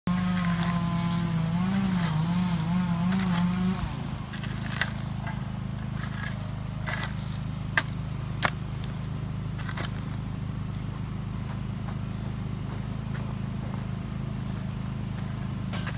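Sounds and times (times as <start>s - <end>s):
engine running: 0.0s - 15.9s
shovel scraping loose material: 0.3s - 7.5s.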